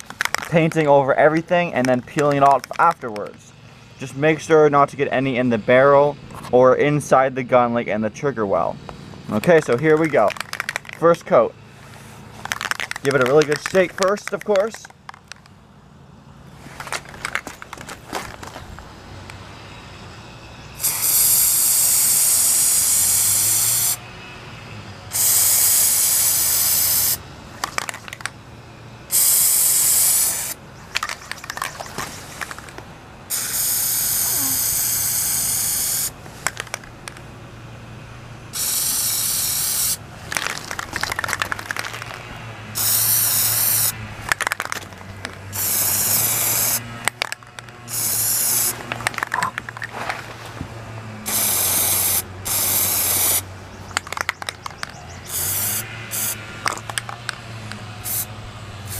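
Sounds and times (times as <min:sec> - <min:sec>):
short clicks and rattles: 0:09.5 - 0:11.3, 0:12.4 - 0:15.6, 0:27.6 - 0:28.4, 0:40.3 - 0:43.0, 0:53.9 - 0:55.4, 0:56.1 - 0:58.2
aerosol can spraying: 0:20.8 - 0:24.0, 0:25.1 - 0:27.2, 0:29.1 - 0:30.6, 0:33.3 - 0:36.6, 0:38.6 - 0:42.1, 0:42.8 - 0:44.0, 0:45.5 - 0:46.8, 0:47.9 - 0:48.8, 0:51.3 - 0:53.4, 0:55.3 - 0:56.4, 0:58.0 - 0:58.3.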